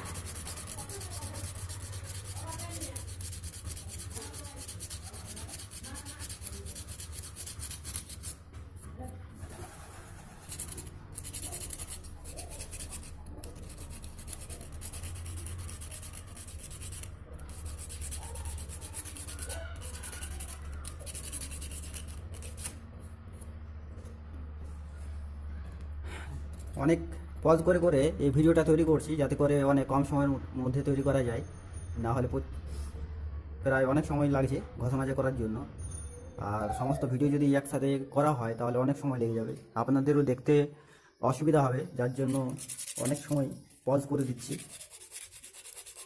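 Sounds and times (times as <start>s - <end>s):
sandpaper rubbing on metal: 0.0s - 8.4s, 9.6s - 22.8s, 42.2s - 46.0s.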